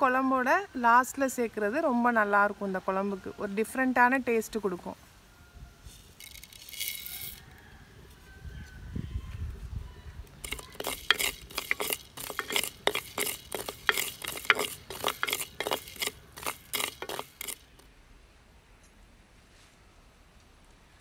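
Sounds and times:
spoon scraping spices in pan: 0:10.4 - 0:17.8.

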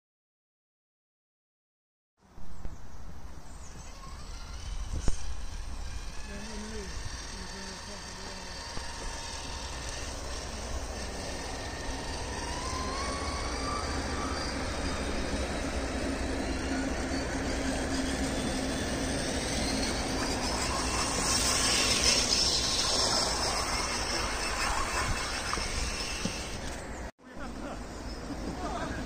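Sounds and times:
electric motors whining: 0:03.3 - 0:29.0
hiss: 0:19.0 - 0:26.8.

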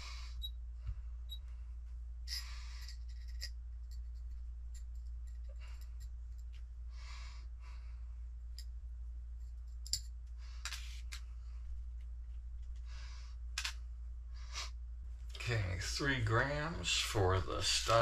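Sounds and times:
steady low hum: 0:00.0 - 0:18.0
small metal screws clicking: 0:09.8 - 0:10.1.

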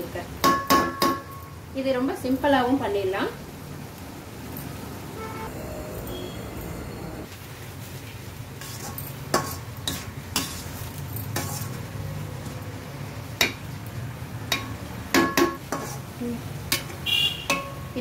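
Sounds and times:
spoon scraping metal pan: 0:08.6 - 0:11.9, 0:14.6 - 0:16.1.

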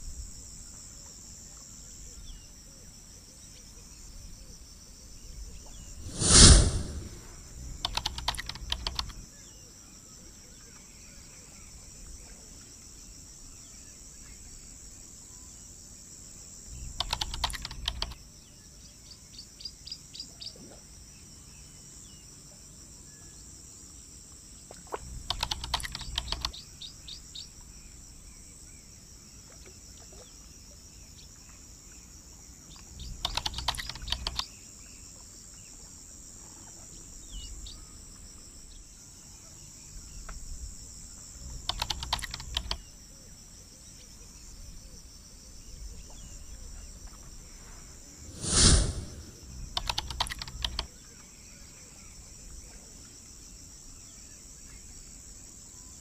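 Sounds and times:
high-pitched insect trill: 0:32.7 - 0:34.6, 0:40.0 - 0:43.0.

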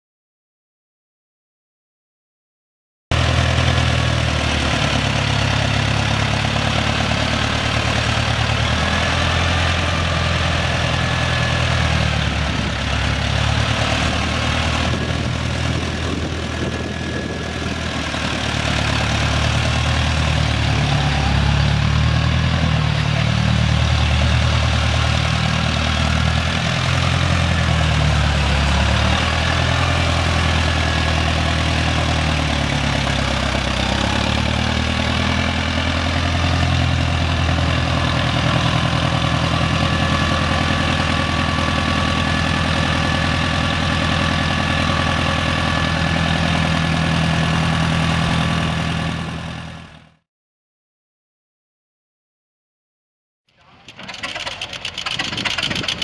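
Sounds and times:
tractor engine droning: 0:03.1 - 0:50.2, 0:53.5 - 0:56.0.

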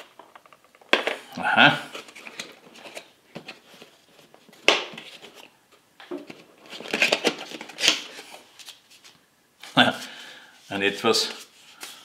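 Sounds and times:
cardboard rustling and scraping: 0:01.8 - 0:05.5, 0:06.2 - 0:09.1.

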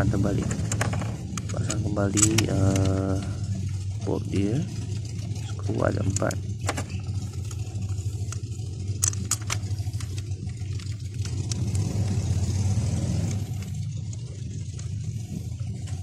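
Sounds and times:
low mechanical hum: 0:00.0 - 0:16.0
metallic clicks: 0:00.4 - 0:03.7, 0:04.9 - 0:12.3.

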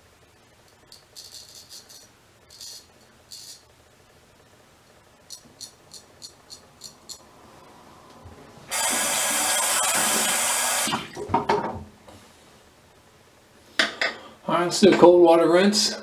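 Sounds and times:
tap running: 0:08.1 - 0:11.9.

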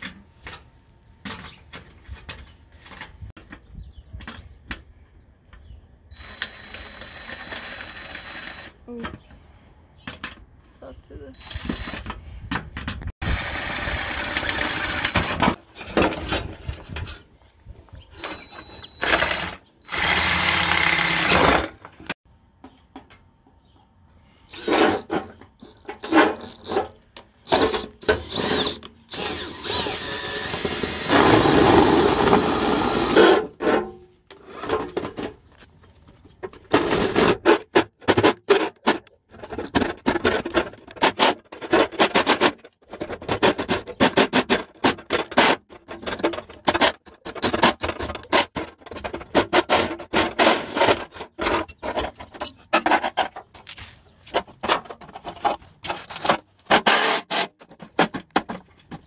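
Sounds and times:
small power tool running: 0:19.0 - 0:21.6.

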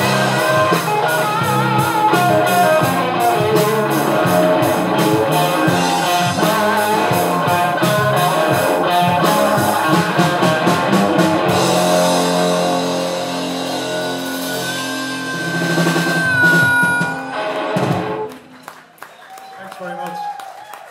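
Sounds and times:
live rock blues band playing: 0:00.0 - 0:18.5
harmonica long high note: 0:00.0 - 0:18.6
drums: 0:00.0 - 0:18.8
ringing guitar chord: 0:10.9 - 0:18.3.

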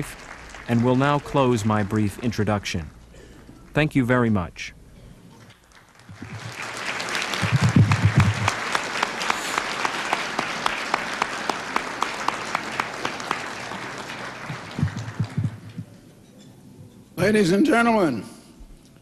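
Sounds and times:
audience applauding: 0:00.0 - 0:02.8, 0:05.5 - 0:16.0.

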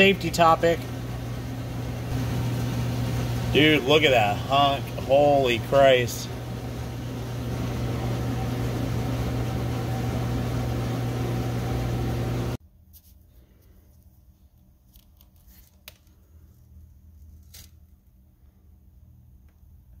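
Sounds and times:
machine hum with hiss: 0:00.0 - 0:12.6.

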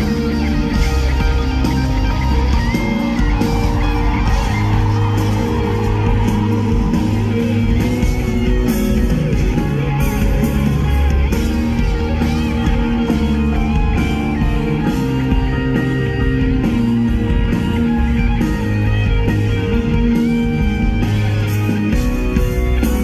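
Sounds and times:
electric guitar: 0:00.0 - 0:23.0
live rock band: 0:00.0 - 0:23.0.

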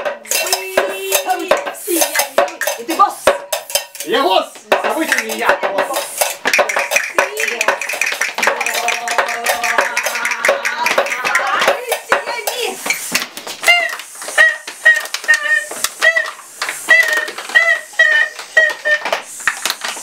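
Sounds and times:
metal bowl clattering: 0:00.0 - 0:13.3.

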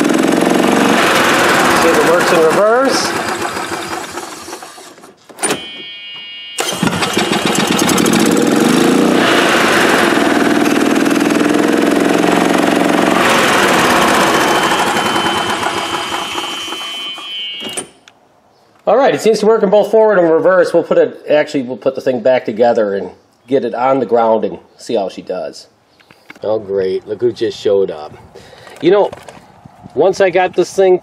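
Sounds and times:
golf cart engine running: 0:00.0 - 0:05.2, 0:06.6 - 0:17.4
reverse warning beep: 0:05.4 - 0:07.2, 0:13.2 - 0:18.0.

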